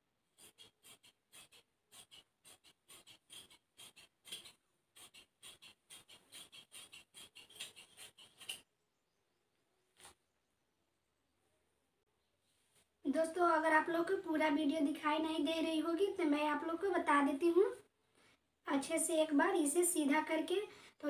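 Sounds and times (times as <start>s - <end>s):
scissors snipping through cloth: 0.4s - 8.6s.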